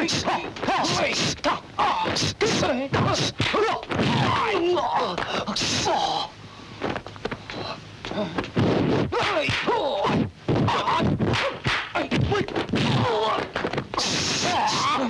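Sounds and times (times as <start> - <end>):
fighters shouting and grunting: 0.0 - 6.3, 9.1 - 15.0
punch and block impacts: 2.0 - 4.5, 8.6 - 14.9.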